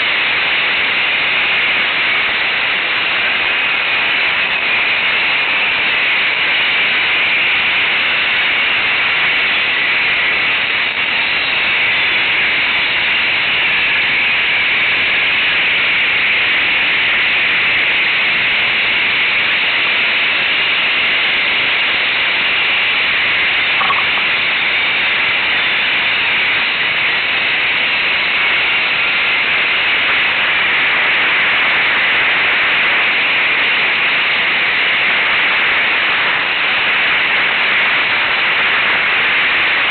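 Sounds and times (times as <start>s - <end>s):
loud static hiss: 0.0s - 39.9s.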